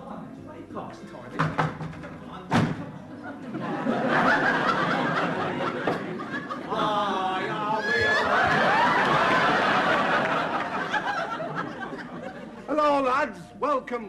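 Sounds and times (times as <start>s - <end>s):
studio audience laughing: 3.1s - 12.7s.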